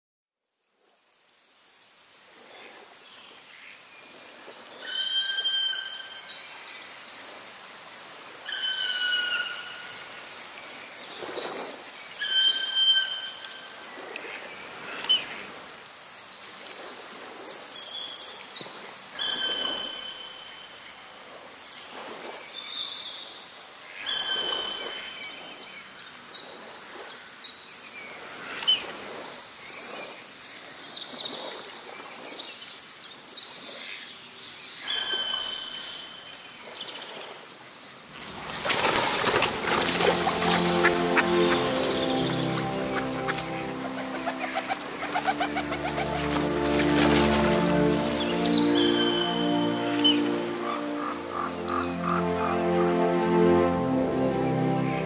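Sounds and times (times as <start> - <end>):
birds chirping and trilling: 38.1 - 53.2.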